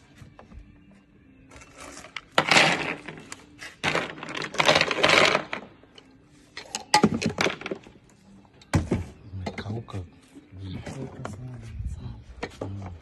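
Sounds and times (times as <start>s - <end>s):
nuts rattling in a hopper: 1.8s - 5.7s.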